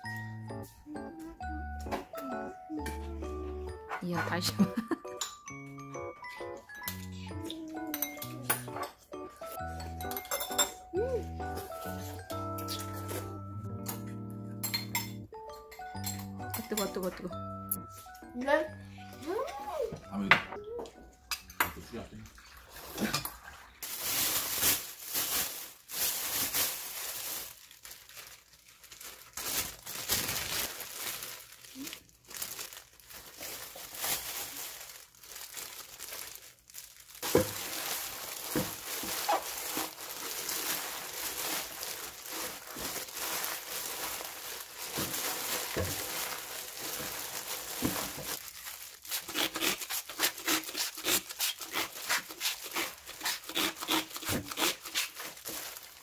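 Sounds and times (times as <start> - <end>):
plastic gloves crinkling: 3.9 - 5.3, 7.6 - 13.6, 16.1 - 18.6, 22.4 - 56.0
plastic bag rustling: 9.4 - 13.6, 16.4 - 18.6, 21.9 - 56.0.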